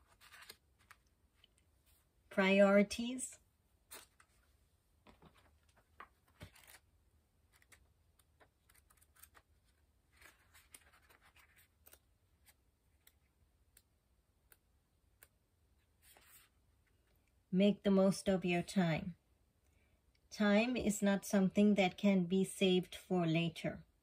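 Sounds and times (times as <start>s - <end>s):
soft scratchy rustles: 16.0s - 16.6s.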